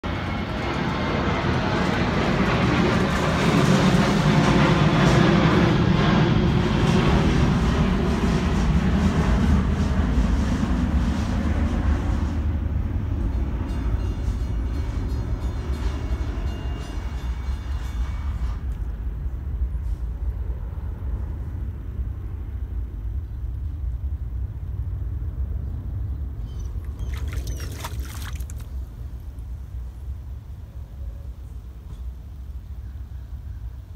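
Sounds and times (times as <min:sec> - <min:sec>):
low outdoor rumble: 0:00.0 - 0:16.4, 0:17.4 - 0:33.9
water splashes: 0:26.7 - 0:29.0.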